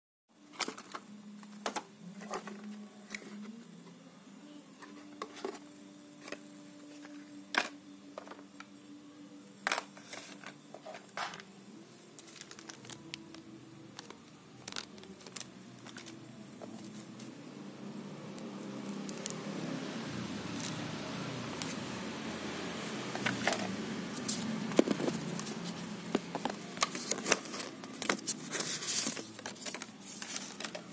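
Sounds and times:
faint steady hum: 0:00.3 - 0:30.9
cardboard and items handled on table: 0:00.6 - 0:03.6, 0:09.7 - 0:11.4, 0:12.2 - 0:17.4, 0:23.1 - 0:30.9.

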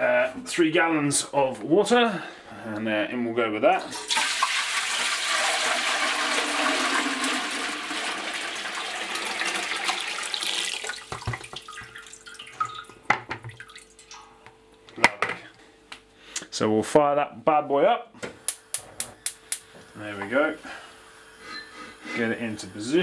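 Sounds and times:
water pouring into metal kettle: 0:03.9 - 0:13.0
water trickling and dripping: 0:10.2 - 0:14.5.

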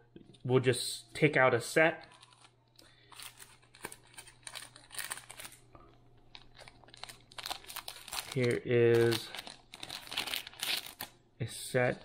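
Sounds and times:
plastic and paper packets rustling: 0:02.0 - 0:11.1.

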